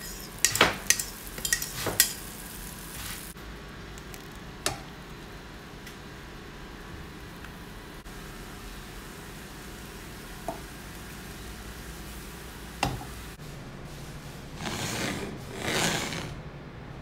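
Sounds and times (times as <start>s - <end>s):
wooden spatula scraping frying pan: 0.0s - 3.3s, 14.6s - 16.4s.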